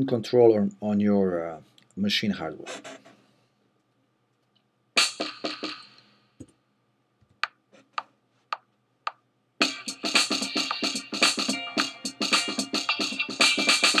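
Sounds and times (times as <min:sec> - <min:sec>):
drum machine beat: 0:05.0 - 0:05.9, 0:09.1 - 0:14.0.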